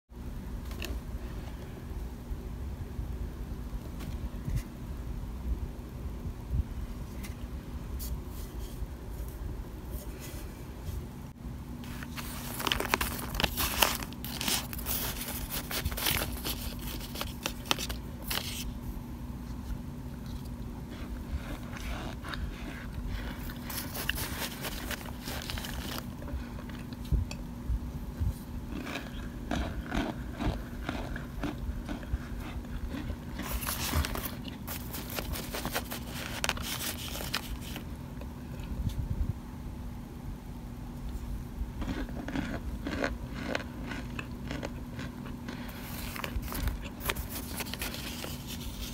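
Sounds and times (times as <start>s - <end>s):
spoon crunching cornstarch chunks: 12.0s - 18.5s, 20.4s - 27.0s, 28.7s - 37.8s, 41.8s - 48.9s.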